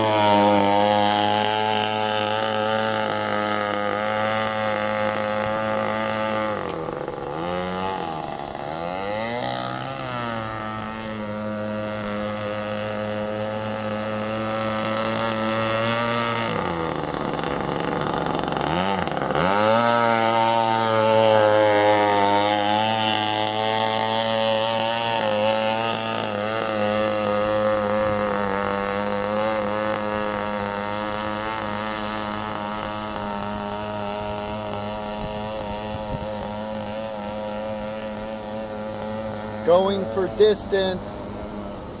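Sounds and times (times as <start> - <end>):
rc boat engine at high revs: 0.0 - 42.0.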